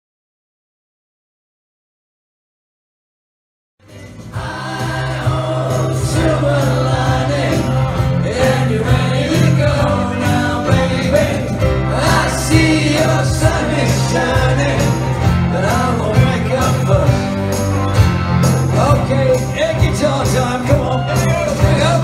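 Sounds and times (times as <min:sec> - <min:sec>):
live pop-rock band playing: 0:03.8 - 0:22.0
person singing: 0:03.9 - 0:17.5, 0:18.6 - 0:22.0.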